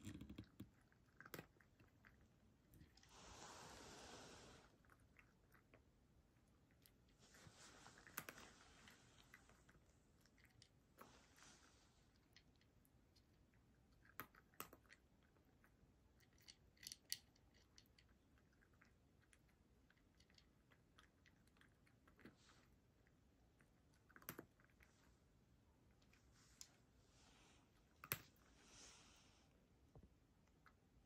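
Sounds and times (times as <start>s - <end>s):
cat crunching dry kibble: 0.0s - 3.2s, 6.5s - 11.4s, 13.5s - 22.7s, 23.8s - 25.0s.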